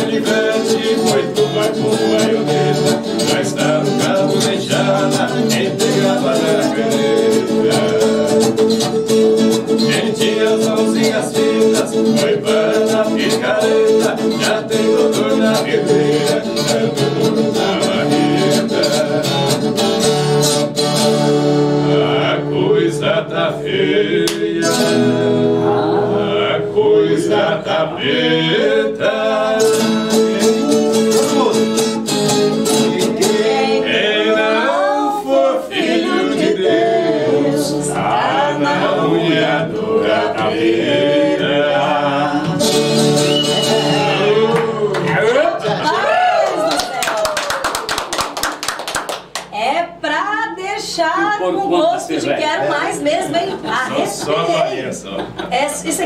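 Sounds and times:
man singing: 0.0s - 19.8s, 26.1s - 31.8s, 32.6s - 34.8s
acoustic guitar strummed and picked: 0.0s - 45.9s.

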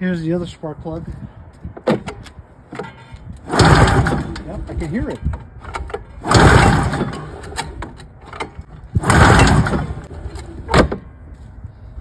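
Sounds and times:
recoil starter pulled: 3.4s - 10.6s.

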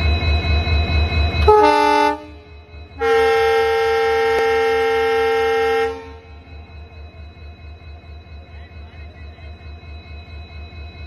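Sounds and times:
locomotive air horn blasts: 1.5s - 2.4s, 3.0s - 6.2s.

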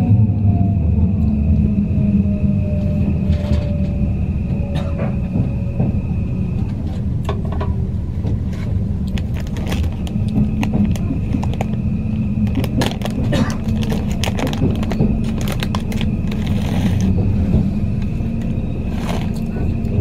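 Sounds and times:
train rumble with faint whine: 0.0s - 20.0s
wheels clicking over rail joints: 12.4s - 18.4s.

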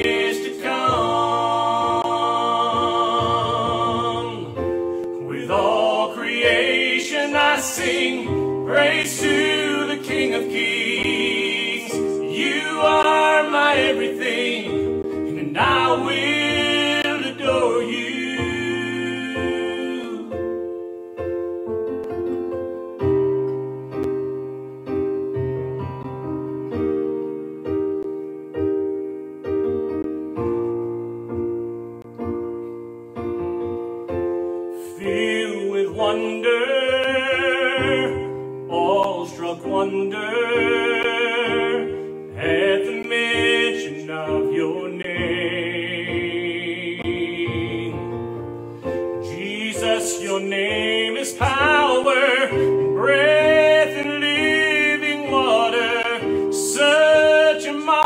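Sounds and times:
slow piano playing: 0.0s - 58.0s
man singing with vibrato: 5.2s - 20.6s, 34.8s - 48.3s, 49.2s - 58.0s.

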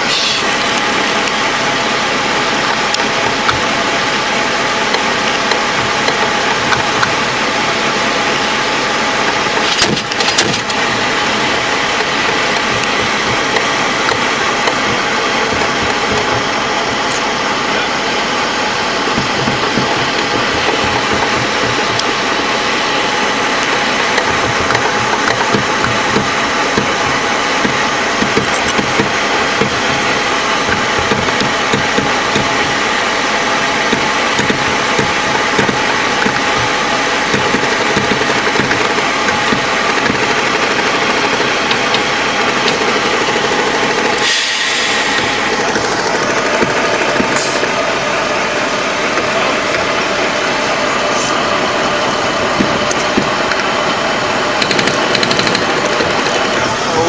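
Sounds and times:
diesel engine idling: 0.0s - 57.0s
knocks: 12.0s - 16.6s, 19.0s - 22.3s, 23.7s - 32.8s, 33.9s - 43.0s.

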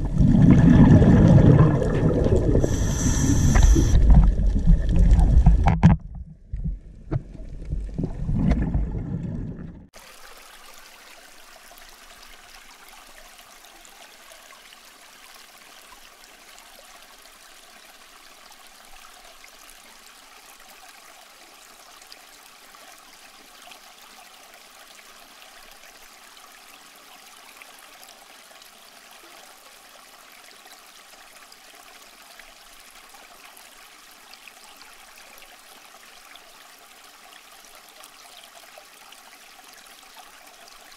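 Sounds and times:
underwater rumble of moving water: 0.0s - 9.9s
faint trickling hiss: 2.6s - 4.2s.

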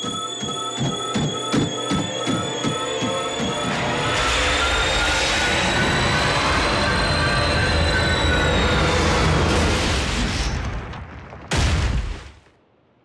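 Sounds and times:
high whine: 0.8s - 10.2s.

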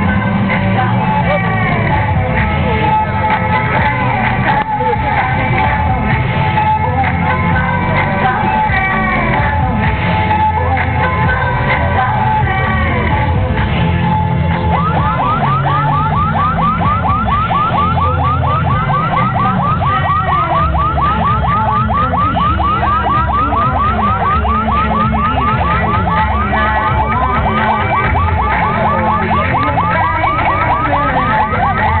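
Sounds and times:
bass line: 0.0s - 32.0s
electronic music: 0.0s - 32.0s
rising siren-like whoop: 14.7s - 32.0s.

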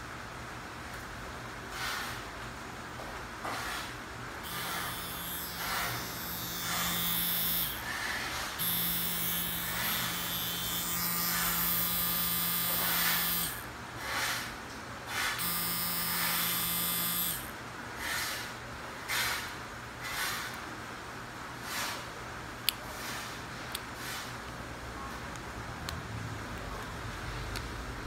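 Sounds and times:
tattoo pen motor buzzing: 4.4s - 13.6s, 15.4s - 17.5s.

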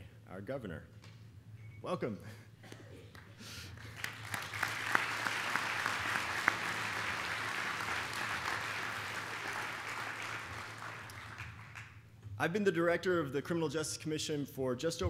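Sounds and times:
audience applauding: 3.8s - 12.0s.

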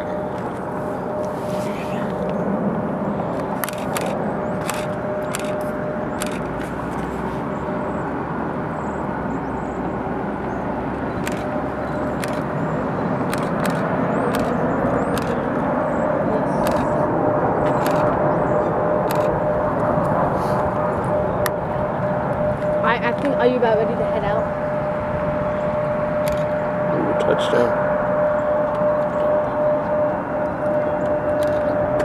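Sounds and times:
distant aircraft engine drone: 0.0s - 32.0s
sharp clicks: 3.4s - 5.6s, 11.2s - 11.5s, 12.2s - 12.5s, 13.3s - 15.4s, 26.2s - 26.5s.

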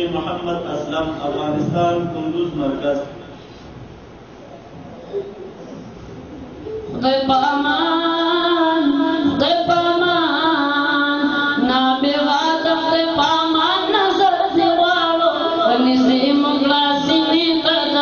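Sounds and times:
person singing unaccompanied chant: 7.0s - 18.0s.

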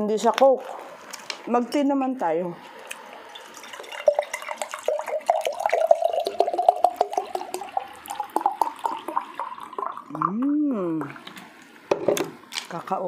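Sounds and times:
tea pouring into glass jar: 3.3s - 10.2s.

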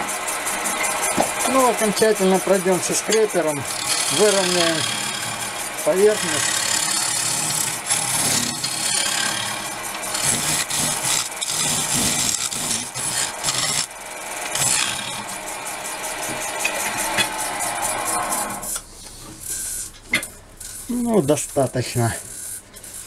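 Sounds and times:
wood lathe running: 0.0s - 18.8s
scraper rasping on wood: 1.4s - 13.9s, 14.5s - 15.2s.

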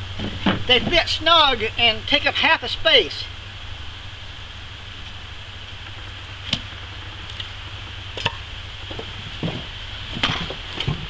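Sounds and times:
wooden pallets knocking: 0.2s - 1.2s, 8.9s - 11.0s.

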